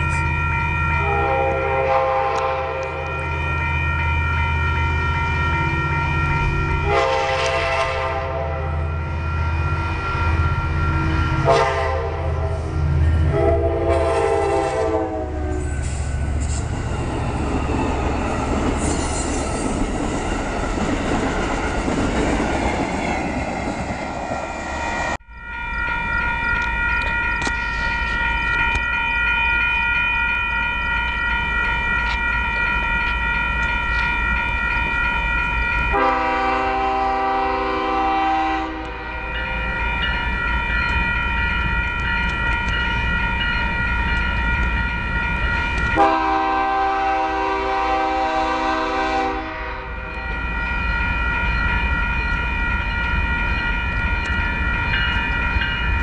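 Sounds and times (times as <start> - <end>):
high ringing horn chord: 0.0 - 16.2, 25.2 - 54.2
train air horn blasts: 1.0 - 3.2, 6.8 - 8.9, 11.4 - 15.9, 35.9 - 39.4, 45.9 - 50.1.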